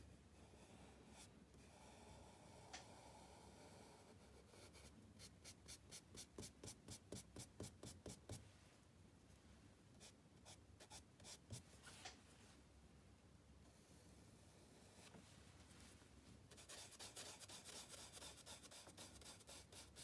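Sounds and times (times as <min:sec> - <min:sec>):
charcoal scratching on paper: 0:00.5 - 0:08.4, 0:16.5 - 0:20.0.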